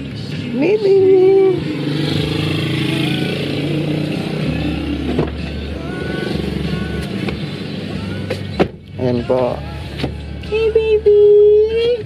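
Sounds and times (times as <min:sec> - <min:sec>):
road noise: 0:00.0 - 0:12.0
car engine hum inside cabin: 0:00.1 - 0:08.9.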